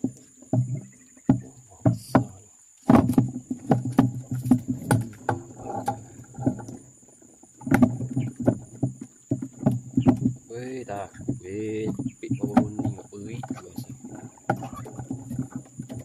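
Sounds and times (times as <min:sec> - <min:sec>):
knocks on hollow plastic hull: 0:00.0 - 0:06.9, 0:07.6 - 0:16.0.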